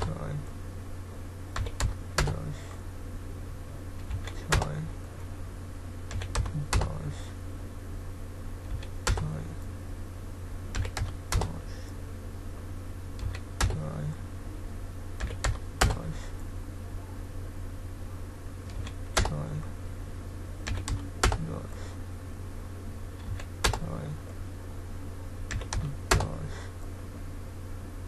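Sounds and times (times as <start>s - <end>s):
steady low hum: 0.0s - 28.0s
keyboard keys tapping: 1.6s - 2.4s, 4.0s - 4.8s, 6.1s - 7.0s, 8.7s - 9.4s, 10.7s - 11.6s, 13.2s - 13.9s, 15.2s - 16.1s, 18.7s - 19.5s, 20.6s - 21.5s, 23.2s - 24.0s, 25.5s - 26.4s.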